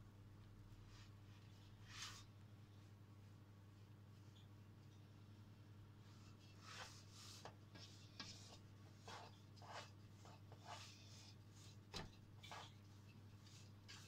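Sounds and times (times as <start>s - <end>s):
spatula scraping batter in metal tin: 6.5s - 14.0s.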